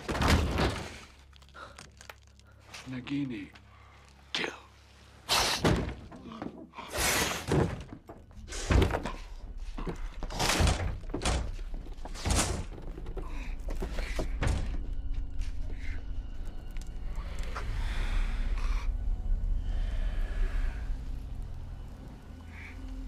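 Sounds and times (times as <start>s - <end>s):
low rumble: 14.6s - 23.0s.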